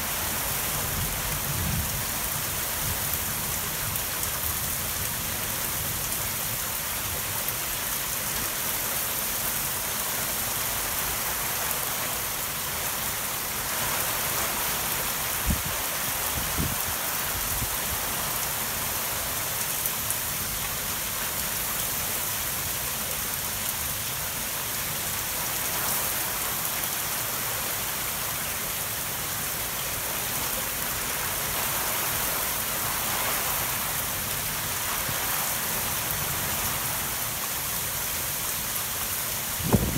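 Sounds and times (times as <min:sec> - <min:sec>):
torrential rain: 0:00.0 - 0:39.9.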